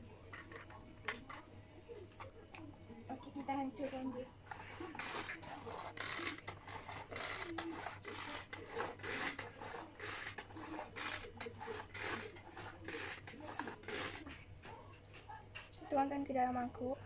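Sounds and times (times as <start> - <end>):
manual food chopper whirring: 3.2 - 14.5.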